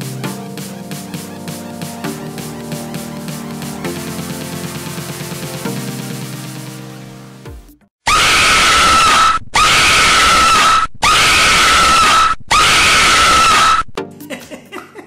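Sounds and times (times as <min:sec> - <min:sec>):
loud screaming sound effect: 0:08.0 - 0:13.9.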